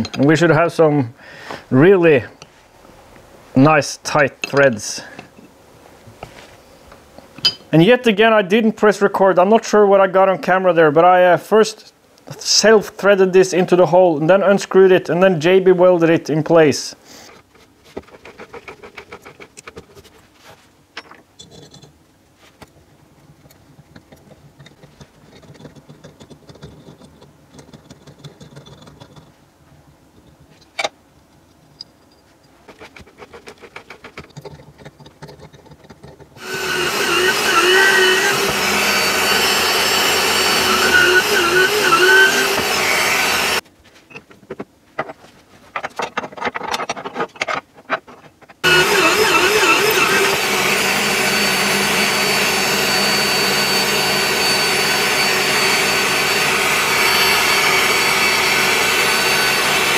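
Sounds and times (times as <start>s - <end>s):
clicks and rubbing on metal: 17.2s - 36.4s, 44.0s - 48.7s
drill press drilling: 36.4s - 43.6s, 48.6s - 59.9s.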